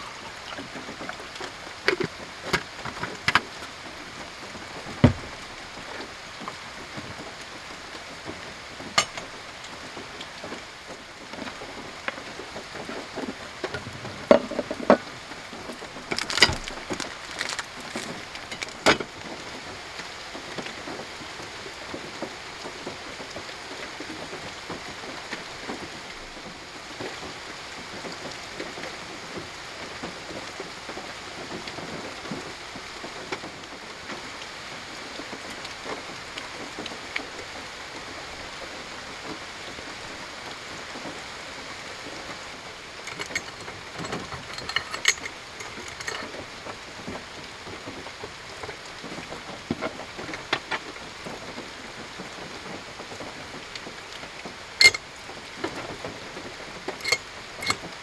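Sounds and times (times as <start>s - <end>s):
light rain pattering: 0.0s - 58.0s
metal cookware clinking: 43.1s - 46.3s, 57.0s - 57.8s.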